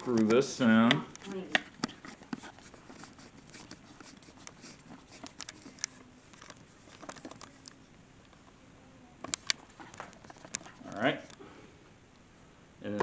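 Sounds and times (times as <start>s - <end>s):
camera handling clicks and scraping: 1.1s - 7.8s, 9.3s - 11.4s.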